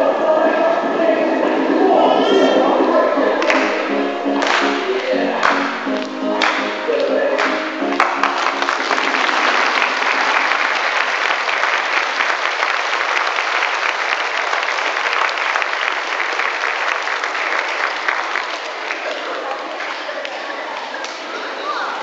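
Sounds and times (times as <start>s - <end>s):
dance music: 0.0s - 11.1s
audience applauding: 3.4s - 6.8s, 7.4s - 21.2s.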